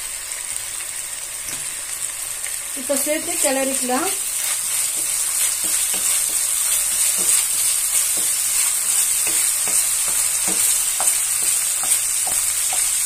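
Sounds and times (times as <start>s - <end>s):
vegetables sizzling in hot oil: 0.0s - 13.0s
wooden spatula scraping pan: 3.3s - 12.9s.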